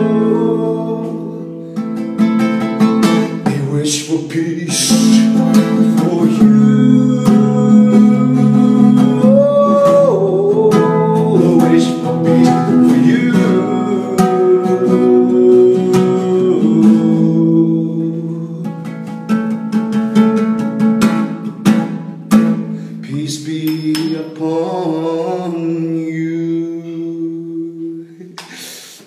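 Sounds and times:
man singing: 0.0 - 1.7, 2.9 - 19.4, 22.9 - 28.7
classical guitar strumming: 0.0 - 28.2.

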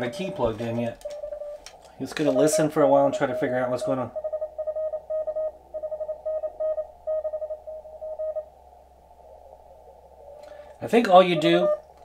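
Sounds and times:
faint receiver hiss: 0.0 - 4.6, 5.2 - 12.0
morse code beeps: 0.0 - 8.5, 11.2 - 11.9.

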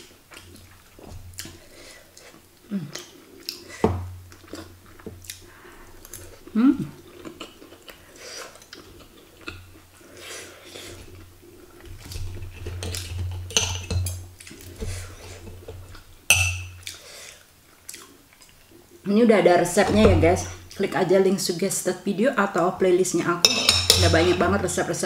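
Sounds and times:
chewing: 0.0 - 13.6, 16.8 - 18.9
cutlery scraping ceramic plate: 23.4 - 24.6.

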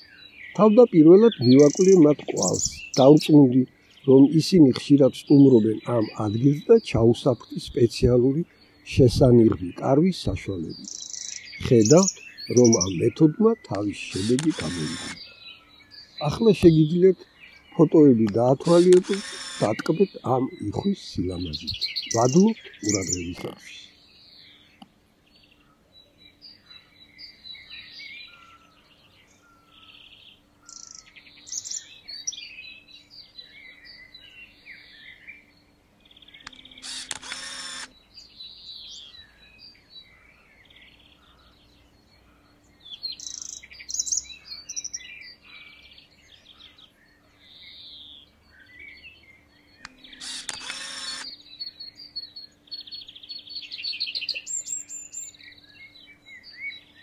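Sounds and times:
loud harsh bird call: 0.0 - 24.0, 36.4 - 38.0, 49.8 - 53.2
small birds chirping: 0.0 - 57.0.

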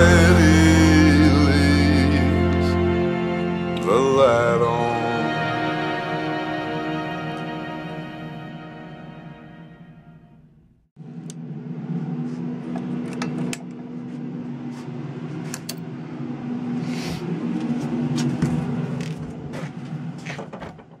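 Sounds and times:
background music: 0.0 - 10.6
low mechanical hum: 10.4 - 21.0.

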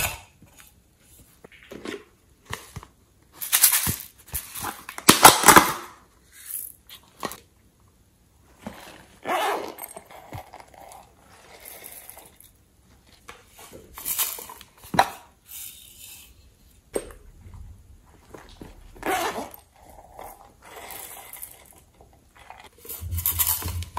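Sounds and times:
plastic containers rustling and tapping: 16.9 - 19.0, 21.5 - 23.9.

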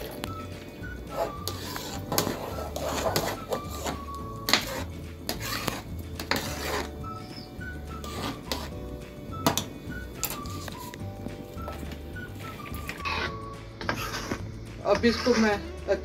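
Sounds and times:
background music with low beat: 0.0 - 16.0
metal ladle scraping a metal pot: 1.0 - 8.8, 12.6 - 15.7.

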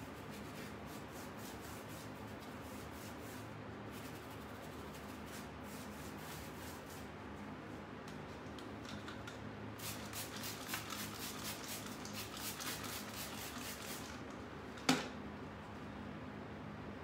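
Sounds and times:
spray bottle squirting: 9.8 - 14.2.

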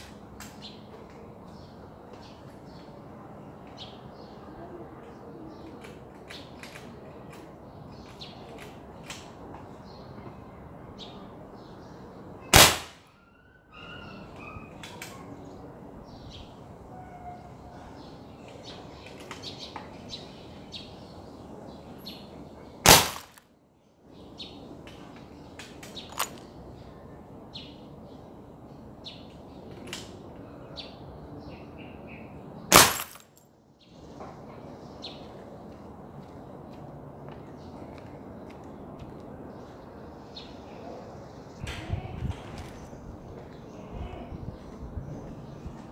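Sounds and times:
birds chirping: 0.0 - 45.9
air rifle shot: 12.5 - 13.1, 22.8 - 23.4, 32.7 - 33.2.

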